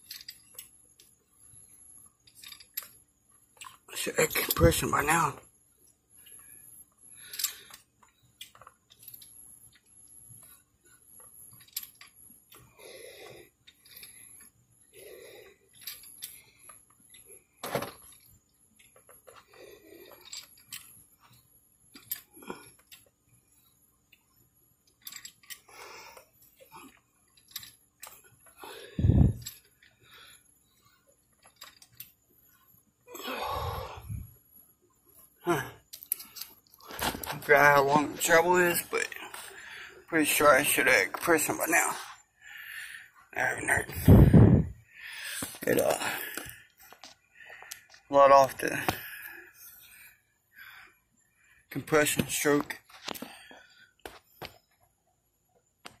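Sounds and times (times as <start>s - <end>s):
metal handling noises: 2.2s - 3.0s, 24.8s - 25.7s, 26.5s - 29.9s, 31.3s - 32.2s, 35.8s - 41.5s.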